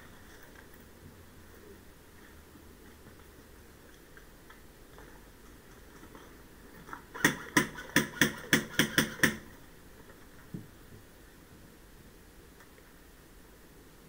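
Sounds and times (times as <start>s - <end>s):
airsoft rifle shots: 7.2s - 9.5s.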